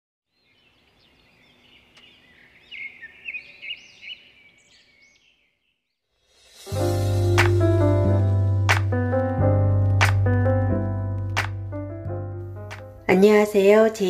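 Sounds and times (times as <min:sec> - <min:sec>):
birds chirping and twittering: 0:00.3 - 0:06.0
music: 0:06.3 - 0:14.0.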